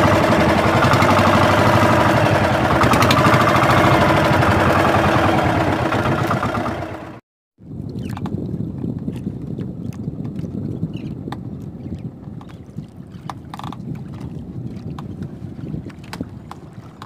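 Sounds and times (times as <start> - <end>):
wind rumbling on microphone: 0.0 - 7.0, 7.6 - 17.0
water washing against boat: 0.0 - 17.0
light clicks and knocks from boat: 7.8 - 17.0.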